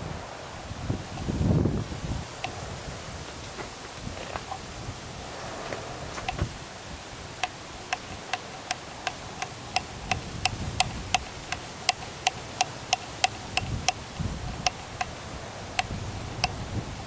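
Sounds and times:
sharp ticks: 7.4s - 15.1s, 15.8s - 16.6s.

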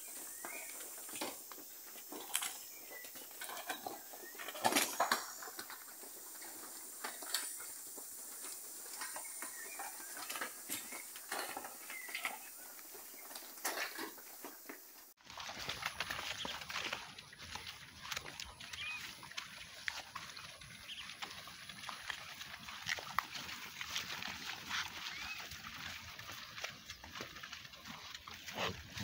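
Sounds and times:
cattle knocking and shuffling: 0.0s - 29.0s.

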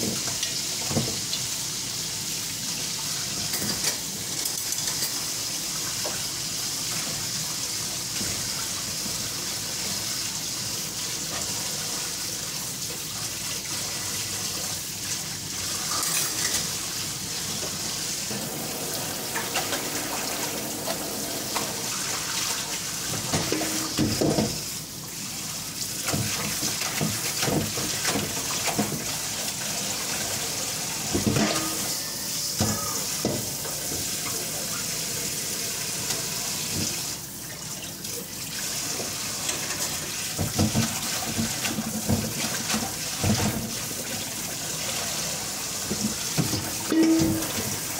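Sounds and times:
tap running into sink: 0.0s - 1.4s, 23.1s - 24.6s, 31.1s - 31.9s, 32.6s - 34.2s, 39.5s - 43.8s, 45.8s - 47.9s
dishes clattering: 31.1s - 33.5s, 45.9s - 47.9s.

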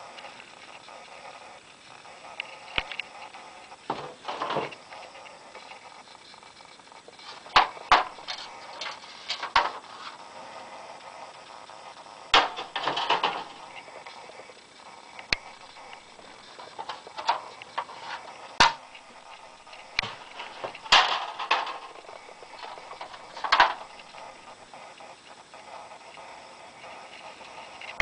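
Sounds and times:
metal sign scraping slide: 3.9s - 4.8s, 7.2s - 10.2s, 15.5s - 24.4s
metal signs clanking together: 3.9s - 4.8s, 7.5s - 9.8s, 12.4s - 13.7s, 15.7s - 24.3s.

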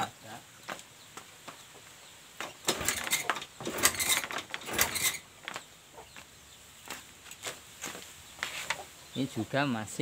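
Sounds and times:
scooter kickstarter clatter: 2.4s - 5.6s.

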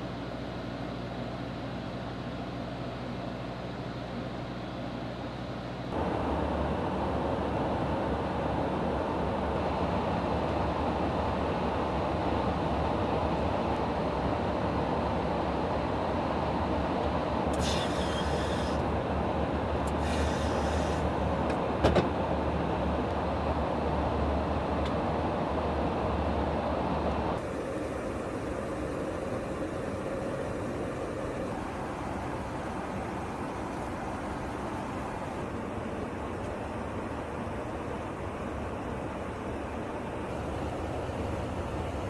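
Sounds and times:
aircraft cabin drone: 0.0s - 42.0s
airflow rush: 5.9s - 42.0s
brief hissing: 17.5s - 18.8s, 19.9s - 21.2s.

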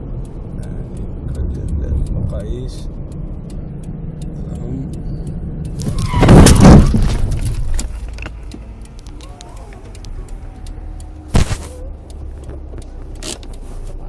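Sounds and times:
vehicle rumbling on road: 0.0s - 14.0s
sharp knocks: 5.9s - 7.5s.

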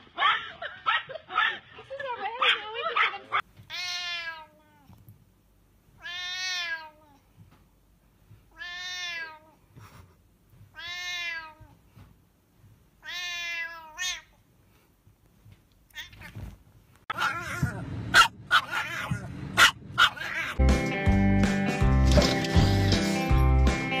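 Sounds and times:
cat meowing: 3.7s - 5.0s, 6.0s - 7.2s, 8.5s - 9.6s, 10.7s - 11.8s, 13.0s - 14.4s, 15.9s - 16.5s, 17.1s - 17.8s, 18.5s - 19.3s, 20.0s - 20.6s.

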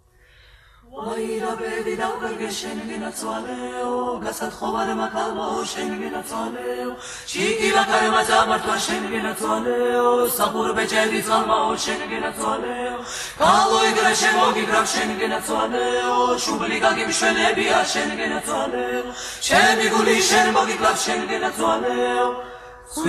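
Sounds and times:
choir singing in harmony: 0.8s - 23.0s.

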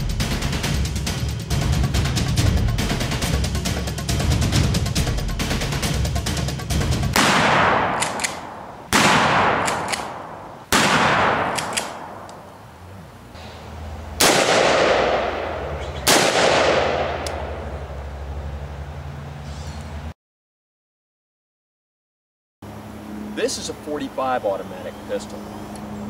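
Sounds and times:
echoing gunshots: 7.1s - 12.6s, 14.2s - 17.9s.

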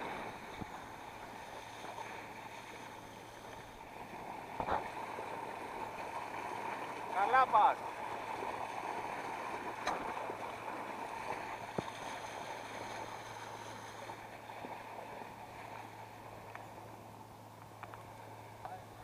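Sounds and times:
motorboat engine hum: 0.0s - 19.0s
water rushing along hull: 0.0s - 19.0s
faint clicks: 17.6s - 18.8s.

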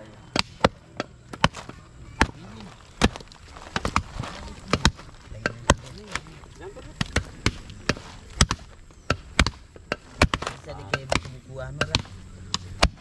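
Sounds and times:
machete chopping bone: 0.3s - 2.4s, 7.0s - 13.0s.

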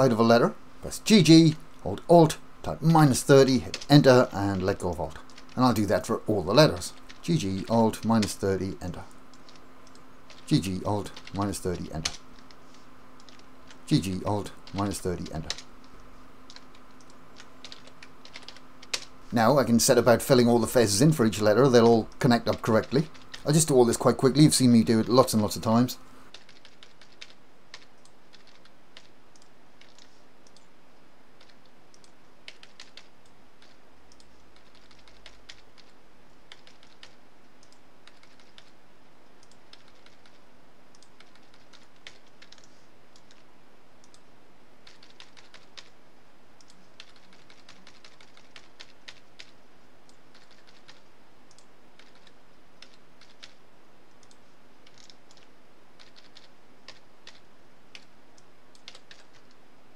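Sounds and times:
faint steady hum: 0.0s - 59.9s
keyboard keys tapping: 1.3s - 12.6s, 31.4s - 38.8s, 44.8s - 46.0s, 46.6s - 53.6s, 54.2s - 59.6s.

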